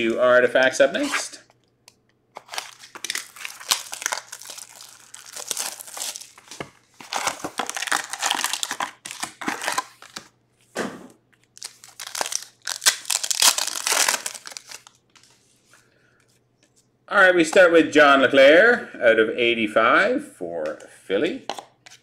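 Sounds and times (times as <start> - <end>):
plastic and foil packaging crinkling: 2.4 - 10.3, 11.4 - 15.3.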